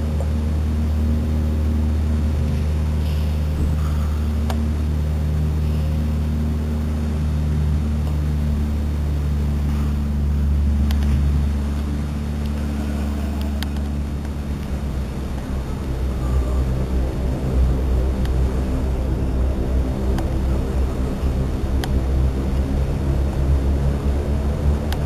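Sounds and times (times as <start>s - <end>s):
low mechanical hum: 0.0s - 25.0s
faint clicks: 10.8s - 15.5s.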